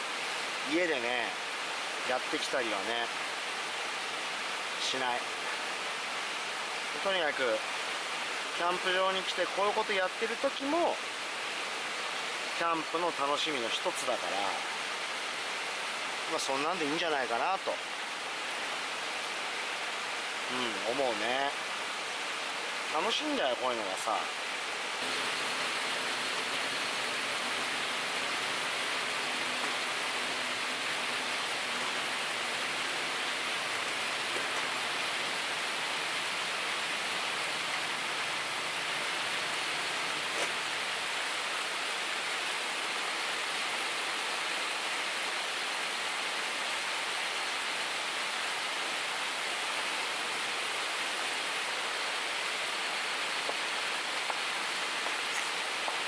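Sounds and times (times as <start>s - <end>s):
river rushing: 0.0s - 56.0s.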